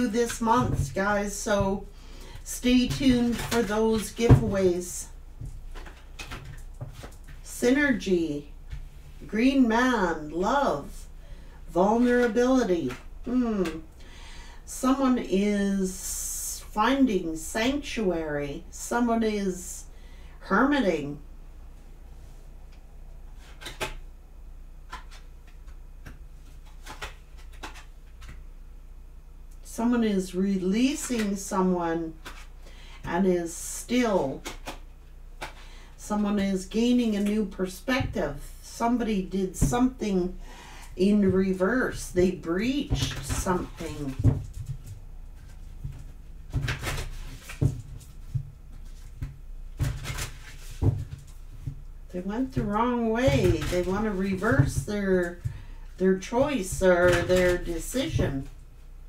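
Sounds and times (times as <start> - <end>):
steady low hum: 0.0 - 59.0
cards being shuffled: 24.9 - 28.4, 43.0 - 51.4
cards sliding and slapping: 26.0 - 28.4.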